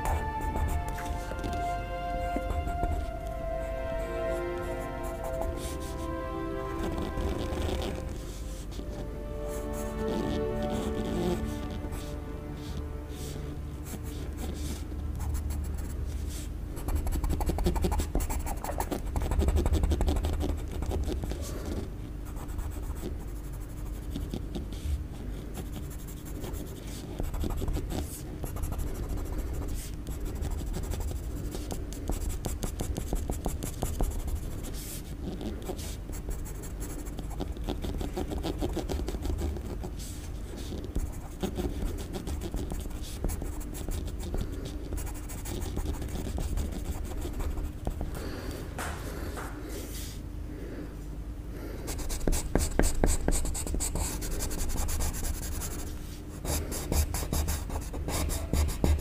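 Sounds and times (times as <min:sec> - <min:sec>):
low hum: 0:00.0 - 0:16.8
pencil scratching on paper: 0:13.2 - 0:48.0, 0:51.9 - 0:59.0.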